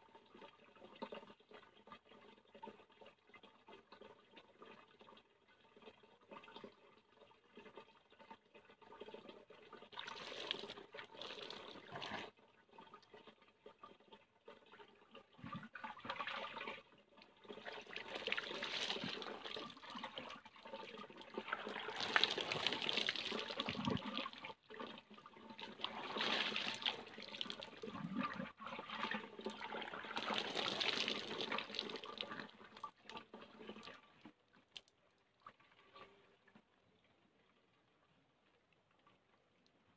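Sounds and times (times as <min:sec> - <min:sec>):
water pouring and splashing: 0:07.5 - 0:36.2.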